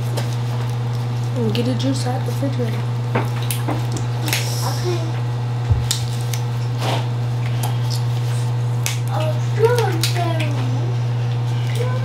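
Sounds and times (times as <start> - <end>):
steady low hum: 0.0 - 12.0
crab legs cracking: 3.3 - 4.6, 5.8 - 6.6, 7.4 - 10.6.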